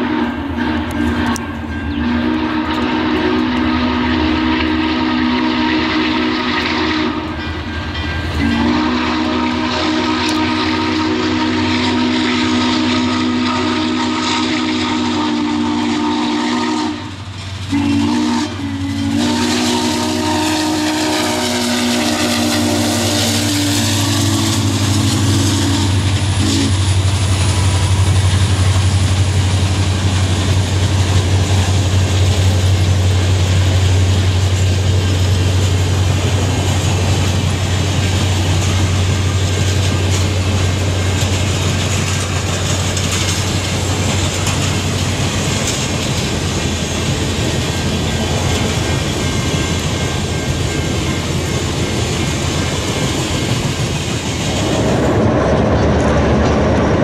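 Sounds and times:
steam whistle blowing: 0.0s - 7.6s, 8.3s - 30.8s
train rolling rumble: 0.0s - 57.0s.

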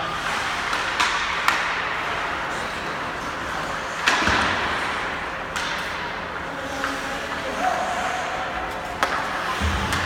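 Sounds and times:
hockey stick cracking puck: 0.6s - 1.9s, 5.5s - 6.0s.

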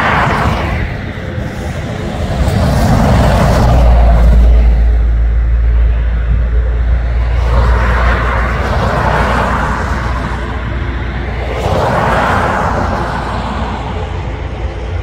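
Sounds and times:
vehicle low rumble: 0.0s - 15.0s
vehicle passing rush: 0.0s - 15.0s.

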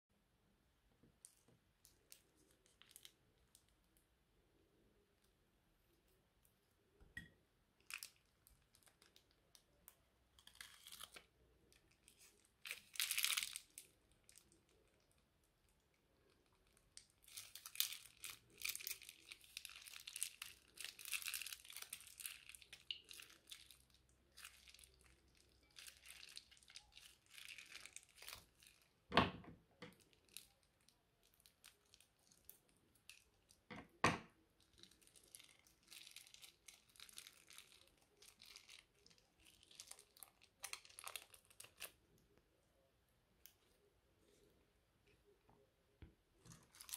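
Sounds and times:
sticky slime crackling: 7.8s - 29.1s, 29.9s - 42.3s, 46.4s - 46.9s
plastic bag crinkling: 10.4s - 15.1s, 16.5s - 29.0s, 34.6s - 42.0s, 46.4s - 46.9s.

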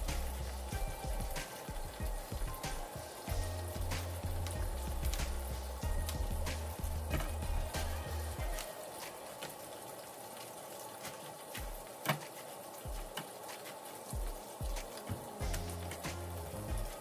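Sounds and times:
leafy greens snapping and rustling: 3.8s - 9.8s, 10.4s - 17.0s.

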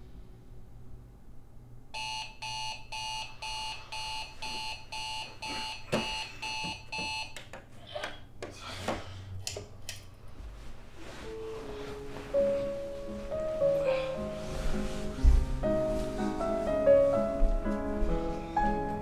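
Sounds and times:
alarm clock beeping: 2.0s - 7.4s
rustling: 10.3s - 18.4s.

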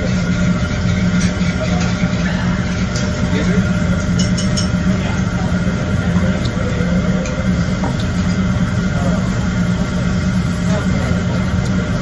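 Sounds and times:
ventilation fan drone: 0.0s - 12.0s
utensils clinking on dishes: 1.2s - 5.2s.

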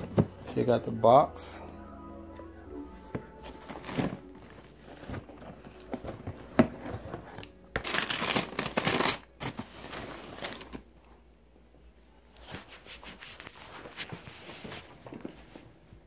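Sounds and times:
tissue paper rustling: 2.6s - 10.8s, 12.4s - 15.7s
cardboard shoebox being opened: 3.1s - 10.8s.

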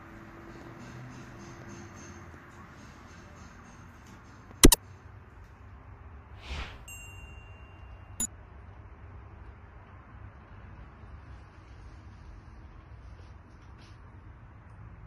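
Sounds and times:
held ding: 6.9s - 8.1s.

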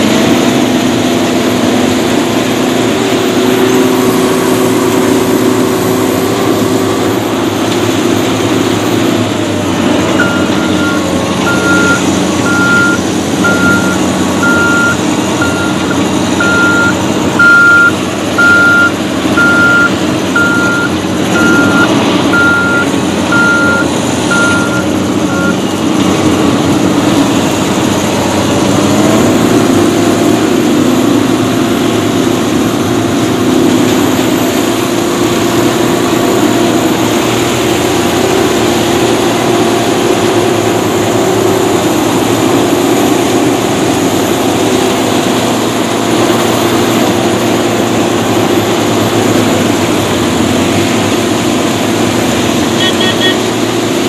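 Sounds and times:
diesel engine and machinery running: 0.0s - 54.0s
electronic alarm beeping: 10.2s - 25.6s, 52.8s - 53.4s.

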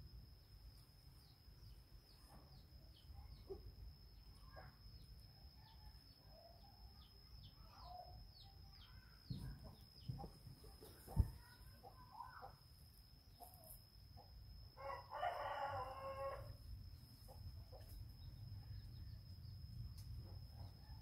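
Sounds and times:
faint steady high tone: 0.0s - 21.0s
rooster crowing: 14.8s - 16.6s.

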